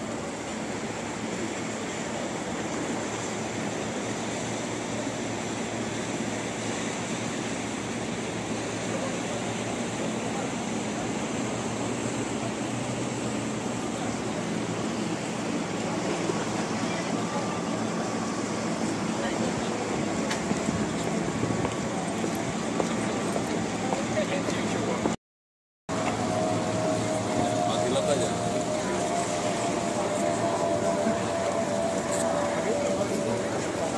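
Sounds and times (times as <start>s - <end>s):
even noise wash: 0.0s - 25.2s, 25.9s - 33.9s
low hum: 25.9s - 33.9s.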